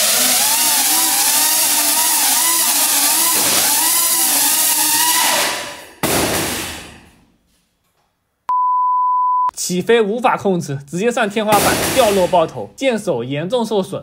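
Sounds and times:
loud crash: 5.0s - 7.2s, 11.5s - 12.5s.

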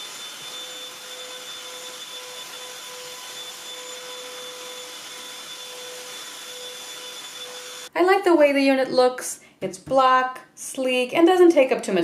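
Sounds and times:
handheld vacuum running: 0.0s - 7.9s.

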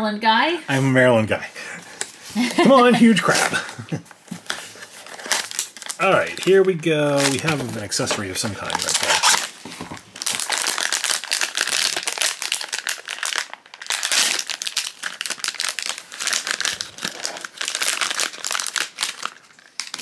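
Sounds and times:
foil pouch crinkling: 4.7s - 20.0s.

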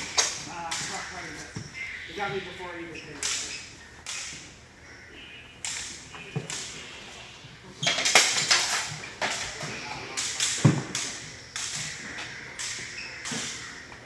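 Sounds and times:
practice swords clacking: 0.0s - 1.4s, 3.1s - 4.6s, 8.0s - 14.0s.

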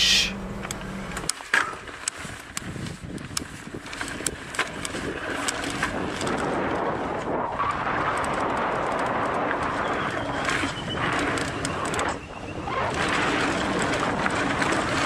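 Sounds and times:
bike tyre and wind noise: 0.0s - 15.0s
sharp clicks and rattles: 0.5s - 12.2s.

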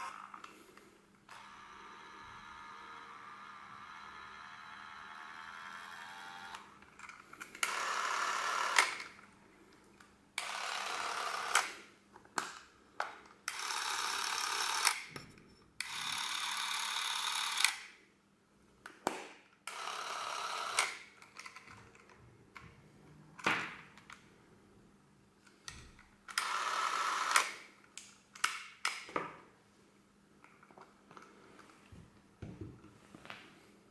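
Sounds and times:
cine camera motor running: 1.3s - 6.7s, 7.6s - 9.0s, 10.4s - 11.6s, 13.5s - 15.0s, 15.8s - 17.7s, 19.7s - 20.8s, 26.4s - 27.4s.

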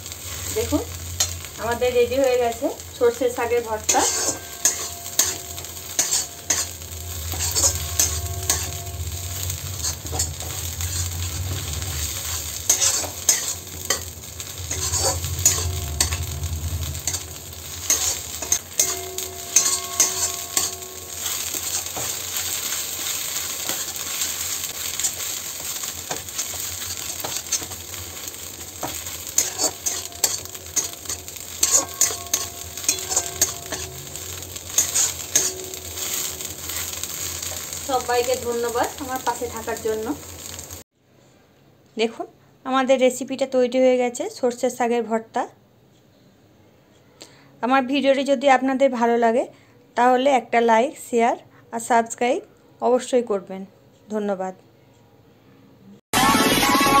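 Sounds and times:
low rumble: 0.0s - 21.5s
metal spatula scraping a pan: 0.0s - 40.7s
greens sizzling in a pan: 0.0s - 40.9s.

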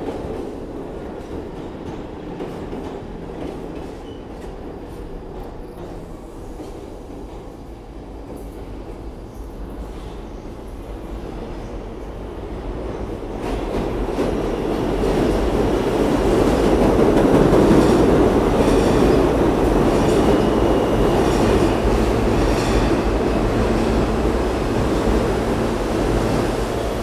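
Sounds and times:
train wheels rumbling on rails: 0.0s - 27.0s.

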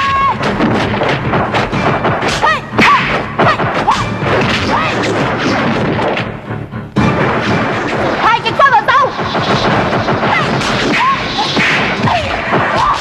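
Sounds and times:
punch and kick whacks: 0.0s - 6.3s, 9.1s - 13.0s.

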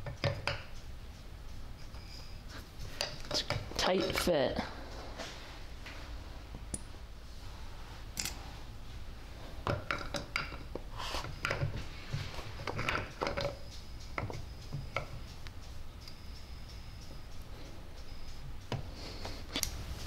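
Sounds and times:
metal clinks and scrapes: 1.8s - 5.3s, 9.7s - 20.0s
sharp ticks: 13.1s - 19.8s.

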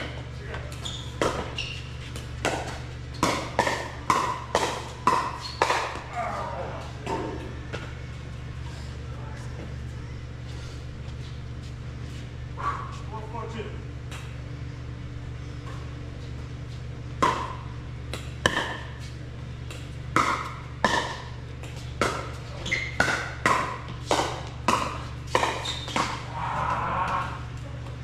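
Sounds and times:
steady low hum: 0.0s - 28.0s
paddles hitting plastic ball: 19.7s - 26.2s.

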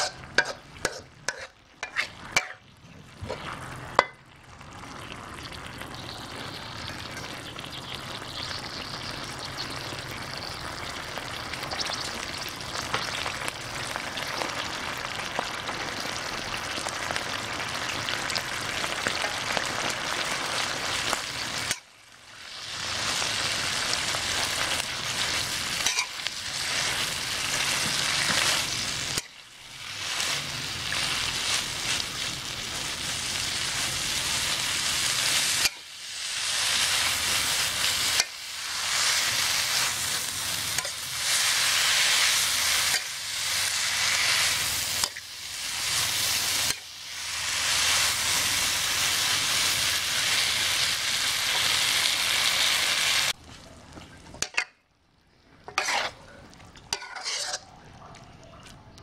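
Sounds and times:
metal spatula tapping: 0.0s - 2.6s
food sizzling in a wok: 0.0s - 53.4s, 55.7s - 56.2s, 56.9s - 57.6s.

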